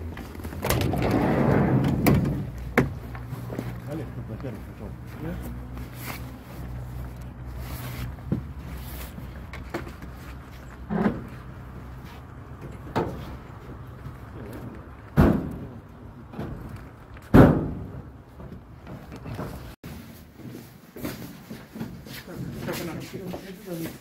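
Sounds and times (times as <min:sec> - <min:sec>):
knocks and thumps in a vehicle: 0:00.1 - 0:03.8, 0:15.1 - 0:19.8.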